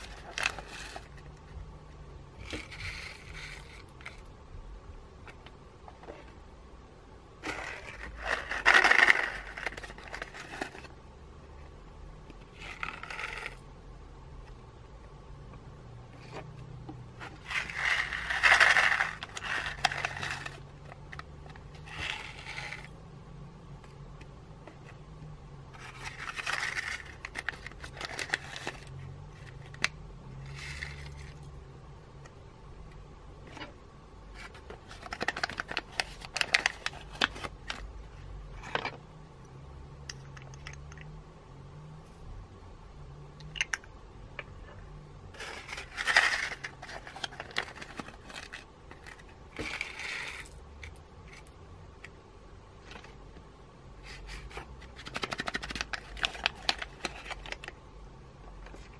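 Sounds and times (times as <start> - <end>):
paper packets rustling: 34.4 - 37.9, 45.4 - 50.2, 54.2 - 57.7.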